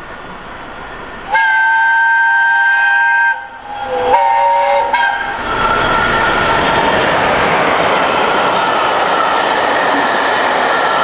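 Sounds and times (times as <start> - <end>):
approaching train rushing: 0.0 - 11.0
steam whistle blasts: 1.3 - 5.4.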